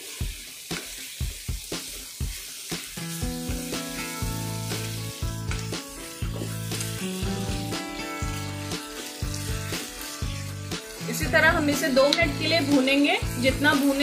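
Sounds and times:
food sizzling in a pan: 0.0s - 14.0s
background music: 1.2s - 14.0s
wooden spatula scraping a pan: 4.6s - 12.8s.

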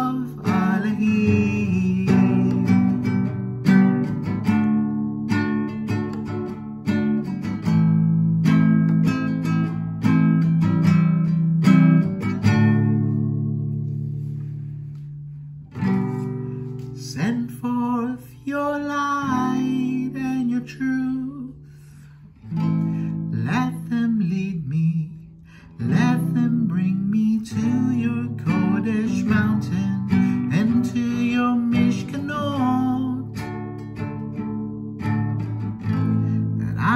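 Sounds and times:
person singing: 0.0s - 3.2s, 16.1s - 21.9s, 22.8s - 33.6s, 36.1s - 36.9s
acoustic guitar strumming: 0.0s - 36.9s.

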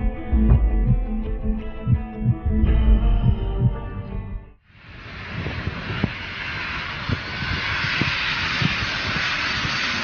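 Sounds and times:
jet airliner engine roar: 4.7s - 10.0s.

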